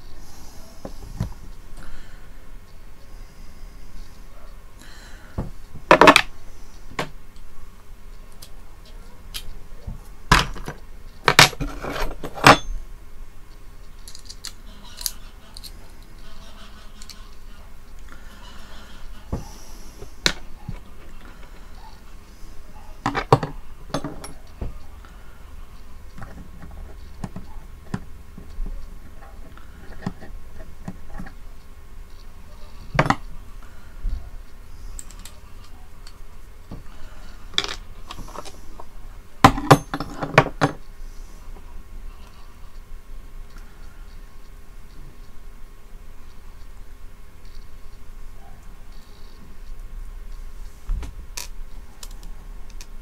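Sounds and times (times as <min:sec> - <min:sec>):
small metal parts clicking and clinking: 0:13.8 - 0:16.2, 0:35.0 - 0:35.4
hands rustling thin wire: 0:13.8 - 0:31.4.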